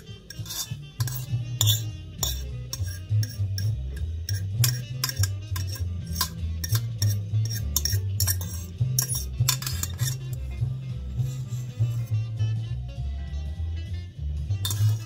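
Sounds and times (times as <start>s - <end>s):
metal pot and utensil clinking: 0.0s - 10.5s, 14.6s - 15.0s
music with stepping bass line: 0.0s - 15.0s.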